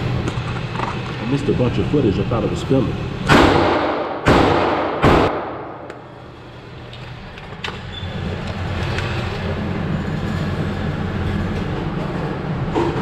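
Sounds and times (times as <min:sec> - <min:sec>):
muffled gunshots: 0:03.3 - 0:05.9.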